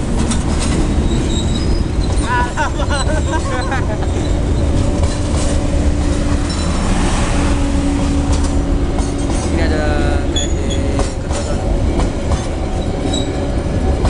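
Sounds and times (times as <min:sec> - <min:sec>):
train wheels rumbling on rails: 0:00.0 - 0:14.0
high-pitched wheel squeals: 0:01.0 - 0:02.3, 0:03.0 - 0:04.8, 0:10.3 - 0:11.2, 0:12.8 - 0:13.4.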